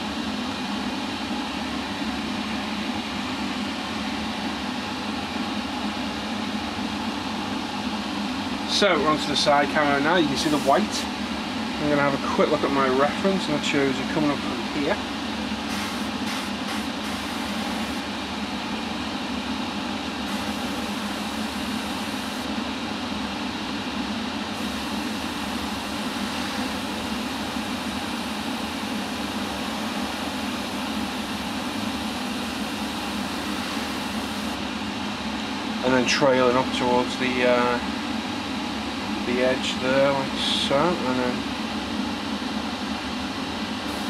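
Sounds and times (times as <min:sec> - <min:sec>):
machine hum: 0:14.3 - 0:18.8, 0:19.8 - 0:22.8, 0:23.9 - 0:35.9
airbrush spraying hiss: 0:15.7 - 0:18.0, 0:20.3 - 0:22.5.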